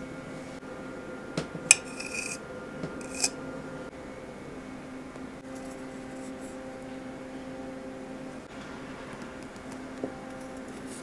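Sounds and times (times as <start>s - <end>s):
low hum: 0.0s - 11.0s
utensil clinking on ceramic plate: 1.7s - 2.4s, 3.0s - 3.3s.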